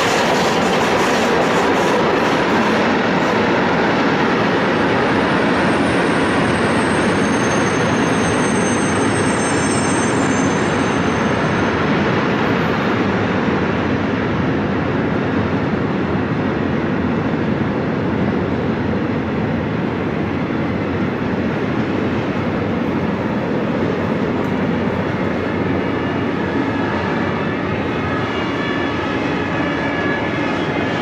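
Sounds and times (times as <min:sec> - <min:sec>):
freight train wheels rumbling: 0:00.0 - 0:31.0.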